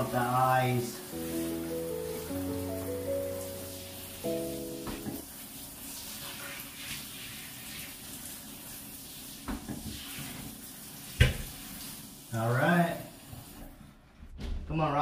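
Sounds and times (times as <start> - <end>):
shower water spraying: 0.0 - 13.9.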